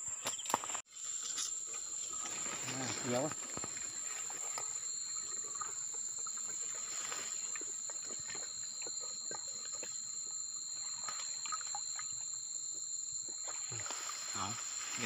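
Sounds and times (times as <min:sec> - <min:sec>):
insects chirring: 0:00.0 - 0:15.0
rustling: 0:01.1 - 0:10.0.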